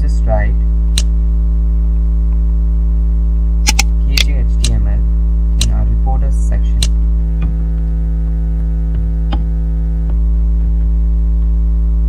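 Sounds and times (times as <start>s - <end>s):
electrical mains hum: 0.0s - 12.0s
computer keys and mouse clicking: 3.7s - 4.8s.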